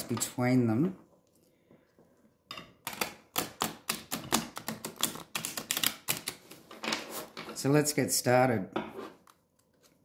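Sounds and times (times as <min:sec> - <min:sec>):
cards being riffle-shuffled: 0:04.0 - 0:07.4.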